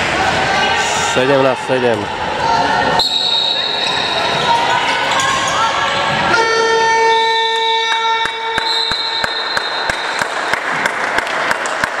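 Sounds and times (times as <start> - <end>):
sports hall buzzer: 6.2 - 10.7.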